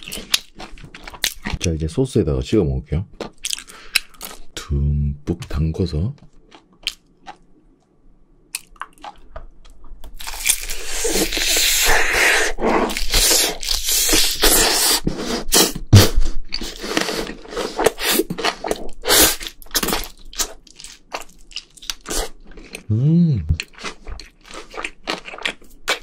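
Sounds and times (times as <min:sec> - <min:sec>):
crunchy chewing of fried chicken: 0:00.0 - 0:01.6, 0:06.3 - 0:07.5, 0:08.6 - 0:22.9, 0:23.6 - 0:26.0.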